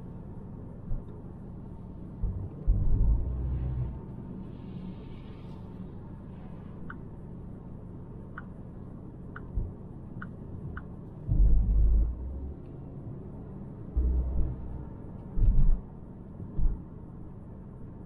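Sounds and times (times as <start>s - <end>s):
car tyres and engine drone: 0.0s - 18.0s
low rumble: 0.9s - 6.0s, 11.2s - 16.9s.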